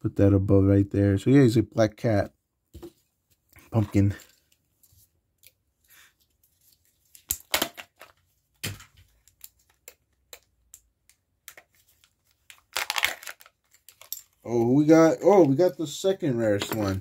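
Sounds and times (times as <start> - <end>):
plastic packaging tearing and crinkling: 12.2 - 14.1.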